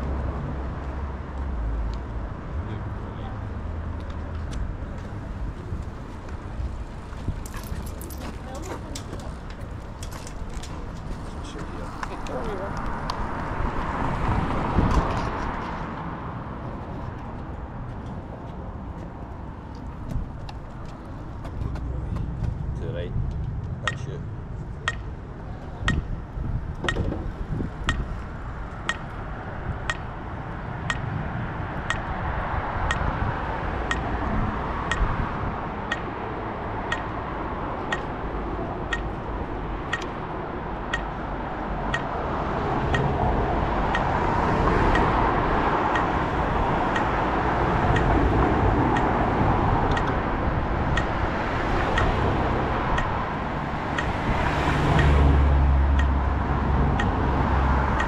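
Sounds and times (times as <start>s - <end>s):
road traffic passing: 0.0s - 58.0s
steady ticking: 20.4s - 31.2s, 31.8s - 32.2s, 32.8s - 58.0s.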